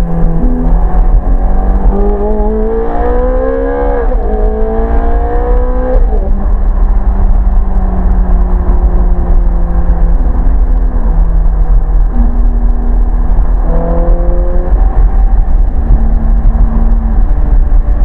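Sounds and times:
low road and wind rumble: 0:00.0 - 0:18.0
sports car engine from inside: 0:00.0 - 0:18.0.

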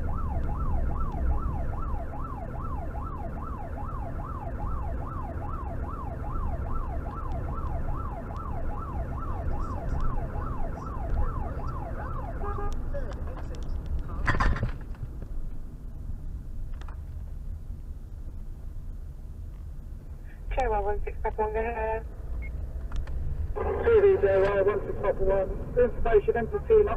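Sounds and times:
emergency siren yelp: 0:00.0 - 0:12.8
engine and road noise: 0:00.0 - 0:26.9.

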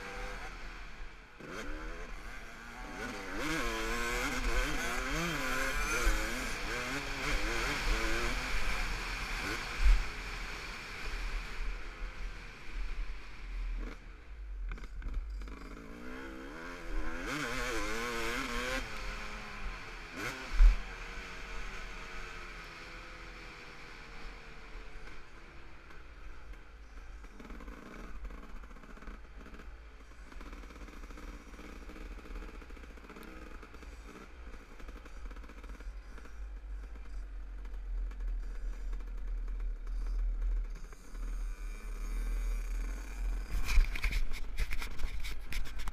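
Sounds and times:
dirt bike engine revving: 0:00.0 - 0:00.8, 0:01.4 - 0:11.6, 0:14.8 - 0:24.5, 0:30.3 - 0:45.5.

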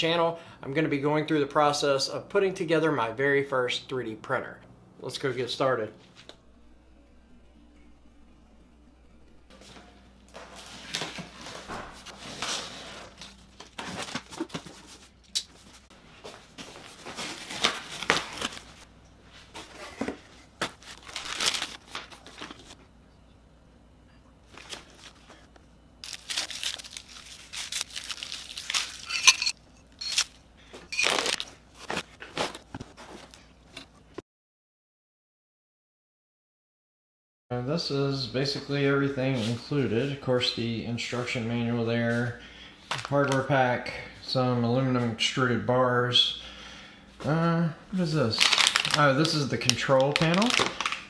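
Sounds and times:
plastic wrapping crinkling: 0:20.6 - 0:22.8, 0:26.0 - 0:30.3, 0:30.9 - 0:33.4, 0:48.3 - 0:51.0
packaging tearing: 0:20.8 - 0:22.7, 0:26.0 - 0:29.2, 0:31.0 - 0:32.5, 0:48.3 - 0:51.0.

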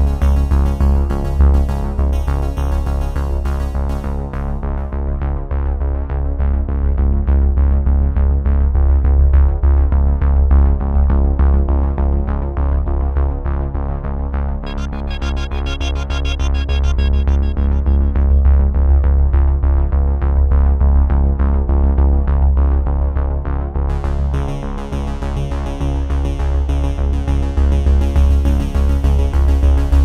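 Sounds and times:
synthesizer music with bass beat: 0:00.0 - 0:04.6, 0:14.6 - 0:19.7.

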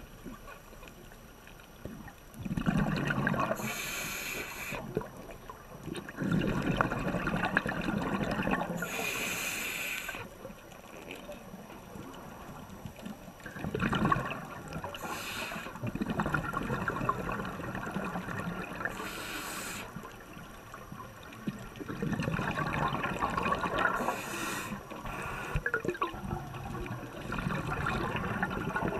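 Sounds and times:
gurgling exhaust bubbles: 0:02.4 - 0:03.6, 0:05.8 - 0:08.8, 0:13.4 - 0:15.0, 0:15.8 - 0:19.0, 0:21.0 - 0:24.2, 0:25.6 - 0:28.9
regulator inhale hiss: 0:03.6 - 0:04.9, 0:08.8 - 0:10.4, 0:14.9 - 0:15.8, 0:18.9 - 0:20.0, 0:24.0 - 0:25.7.

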